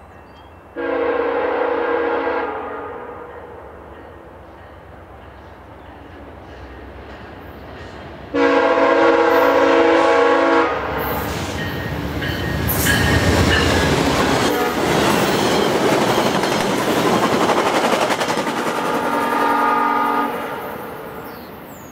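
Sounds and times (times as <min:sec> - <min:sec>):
locomotive multi-note horn: 0:00.8 - 0:03.5, 0:08.3 - 0:11.2, 0:14.4 - 0:15.1, 0:18.7 - 0:20.8
train coaches rushing and clattering: 0:03.3 - 0:21.9.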